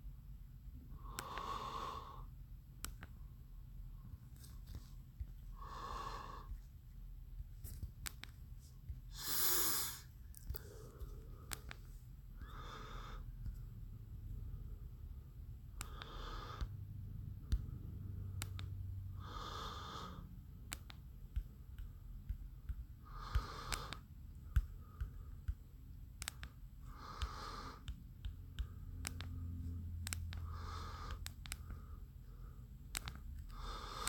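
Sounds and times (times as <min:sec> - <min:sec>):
person breathing wheezily: 0:09.1 - 0:11.4
faint clicks: 0:10.3 - 0:12.5, 0:26.2 - 0:29.4, 0:30.0 - 0:31.9, 0:32.9 - 0:34.0.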